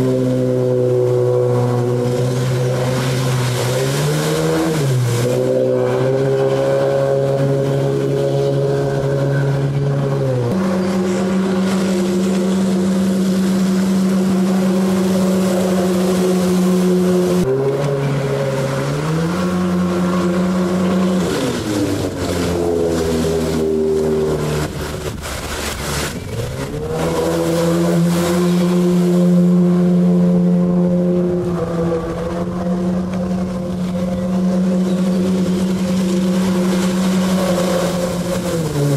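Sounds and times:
outboard motor at high revs: 0.0s - 38.9s.

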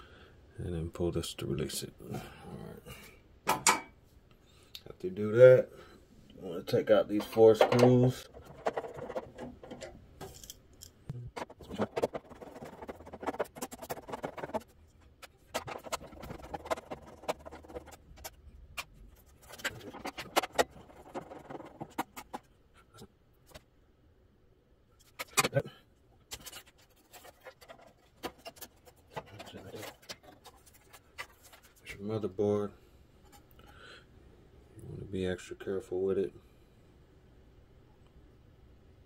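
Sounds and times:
screwdriver scratching and clicking: 7.1s - 22.4s, 26.3s - 31.7s.

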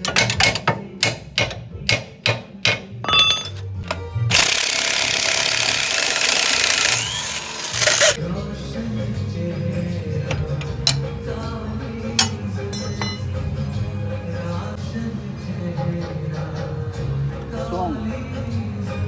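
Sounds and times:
impact wrench hammering: 0.0s - 8.2s.

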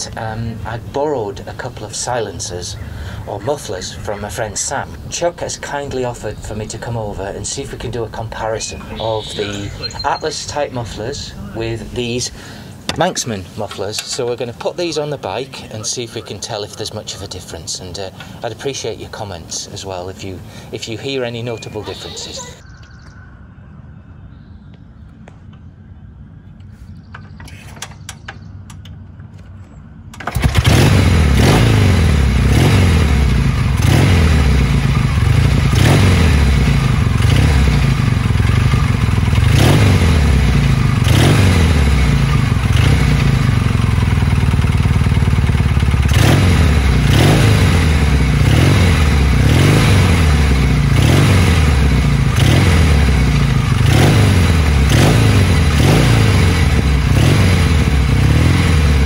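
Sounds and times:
motorcycle kick-start knocks: 27.1s - 30.8s
motorcycle engine running: 28.0s - 59.0s.

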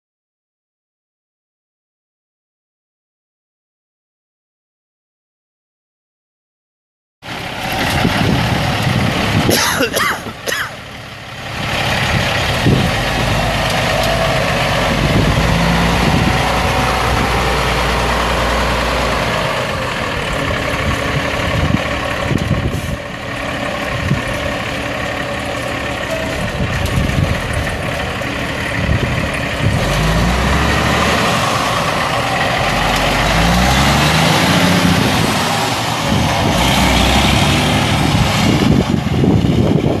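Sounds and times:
truck diesel engine pulling away: 7.2s - 40.0s.

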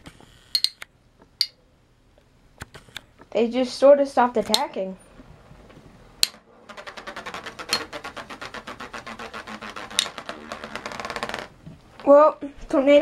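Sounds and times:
spinning tops clattering: 6.2s - 12.1s.

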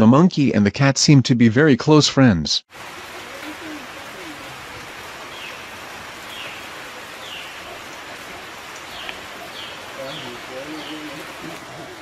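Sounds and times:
steady rain: 2.7s - 12.0s
bird chirping: 5.3s - 11.9s.

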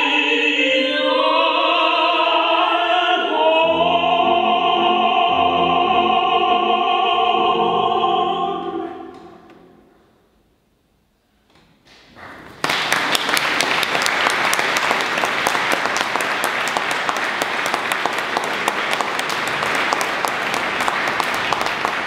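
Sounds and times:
audience applause: 12.2s - 22.0s.

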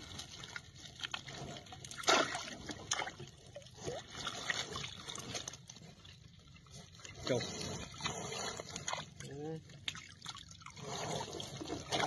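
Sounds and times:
water splashing and dripping: 0.0s - 5.8s, 8.0s - 12.0s.

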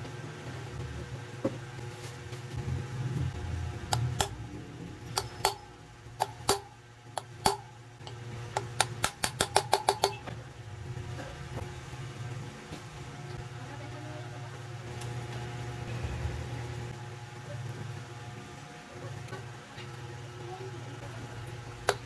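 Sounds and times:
hammer striking metal wrench: 5.1s - 7.7s, 8.6s - 10.3s.

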